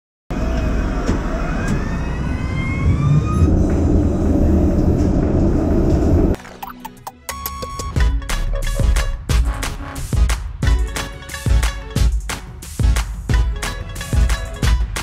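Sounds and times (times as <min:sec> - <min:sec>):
rising multi-tone whine: 0:00.4 - 0:06.4
tram wheels rumbling on rails: 0:00.4 - 0:06.4.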